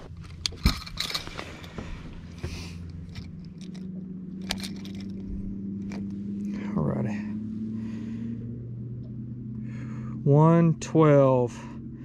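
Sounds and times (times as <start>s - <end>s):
clicks and scraping handling fish: 0.0s - 6.1s
low hum: 0.0s - 12.0s.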